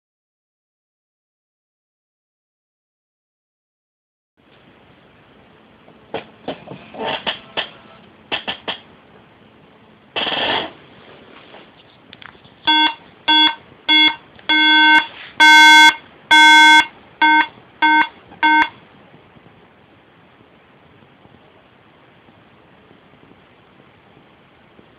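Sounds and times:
buzzy computer error beeps: 12.7 - 18.8.

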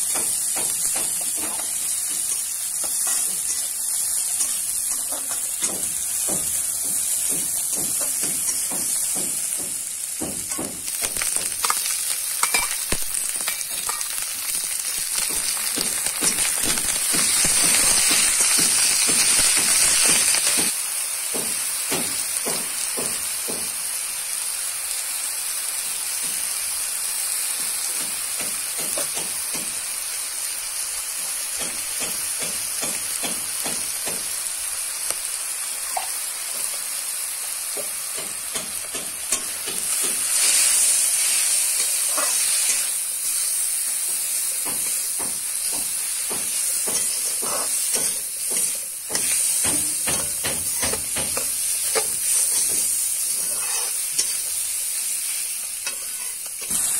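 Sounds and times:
meat sizzling in a wok: 0.0 - 56.9
metal spatula scraping a pan: 39.8 - 43.0, 46.5 - 49.6, 50.7 - 56.9.

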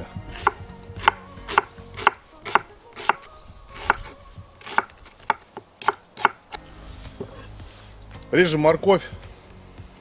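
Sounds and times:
knife slicing an onion: 0.3 - 6.6.

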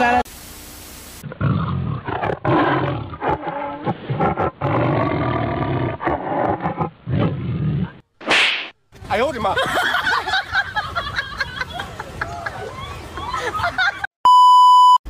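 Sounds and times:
tiger roaring and growling: 1.2 - 8.0.

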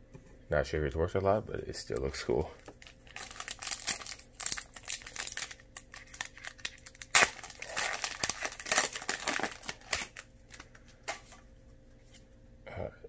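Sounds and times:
foil wrapper crinkling: 2.6 - 11.2
foil wrapper ripping: 2.8 - 10.7.

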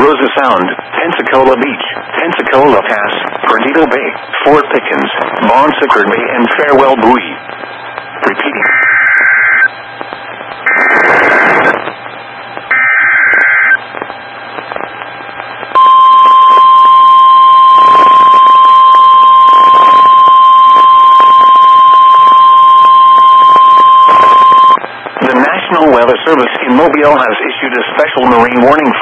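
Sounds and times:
data tone bursts: 5.4 - 25.5
steady warning alarm tone: 12.3 - 13.8, 15.7 - 24.8.

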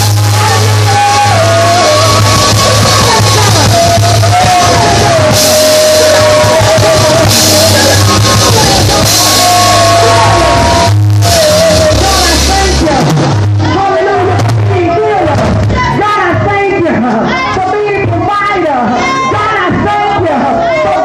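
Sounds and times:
drum kit played hard: 0.0 - 16.0
crash cymbal hits: 7.2 - 11.8.

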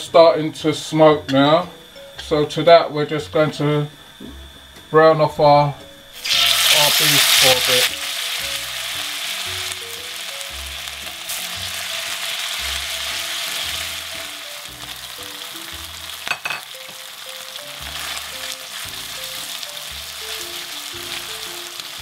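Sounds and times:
meat sizzling in hot oil: 6.2 - 22.0.

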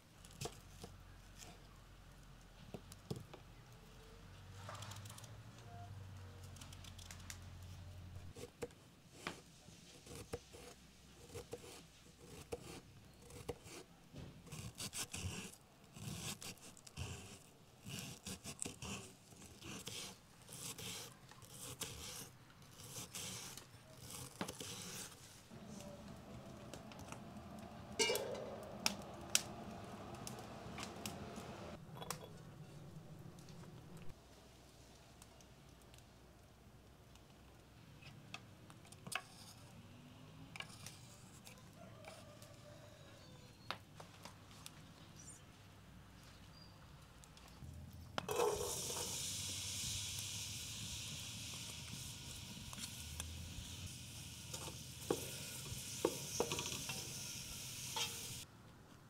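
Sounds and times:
knife slicing onion on wooden board: 19.7 - 25.1.

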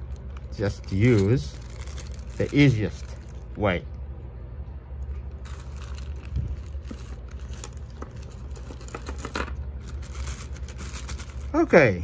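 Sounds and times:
plastic bag crinkling: 0.0 - 3.6, 5.1 - 11.7
low hum: 0.0 - 11.6.

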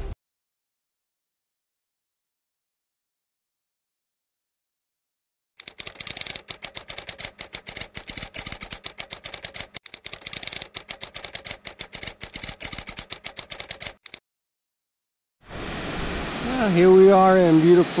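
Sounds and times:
typewriter key clicks: 5.6 - 14.2.

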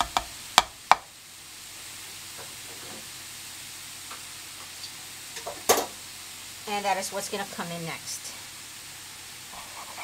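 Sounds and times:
metal spatula tapping pan: 0.0 - 1.1
food sizzling in frying pan: 0.0 - 10.0.

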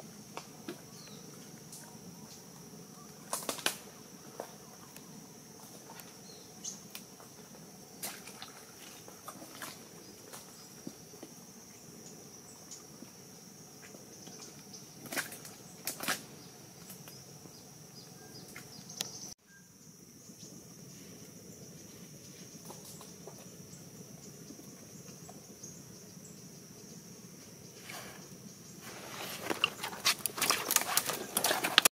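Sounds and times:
high insect drone: 0.0 - 31.9
twigs snapping: 3.3 - 3.8.

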